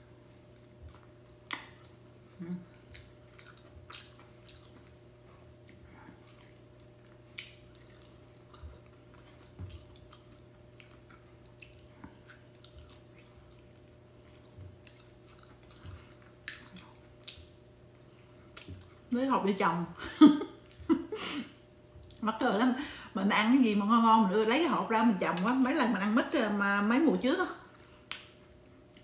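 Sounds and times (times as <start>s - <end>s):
faint steady hum: 0.0s - 29.0s
wet chewing sounds: 0.1s - 19.2s, 21.8s - 22.3s, 27.6s - 29.0s
lip smacks: 0.6s - 2.0s, 2.6s - 19.1s, 21.9s - 22.2s, 27.8s - 29.0s.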